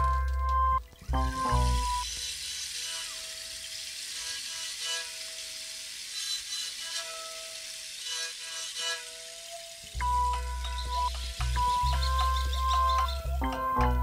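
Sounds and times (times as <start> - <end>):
scratchy bow noise: 1.1 - 14.0
spike fiddle bowed notes: 2.8 - 14.0.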